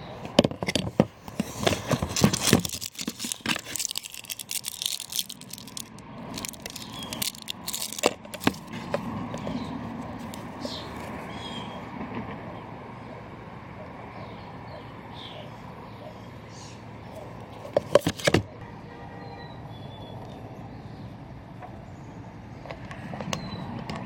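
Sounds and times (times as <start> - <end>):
metal parts clicking and knocking: 0.4 - 8.7.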